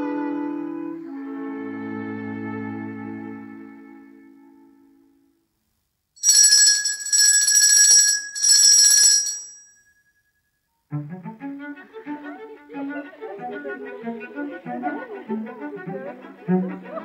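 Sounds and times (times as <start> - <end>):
low orchestral music: 0.0 - 5.1, 10.9 - 17.0
small metal bell ringing: 6.2 - 10.1.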